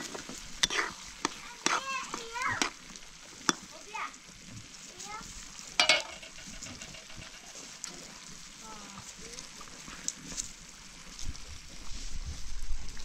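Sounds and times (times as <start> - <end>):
sizzling in a metal pan: 0.0 - 12.2
metal ladle clinking on pan: 5.8 - 7.5.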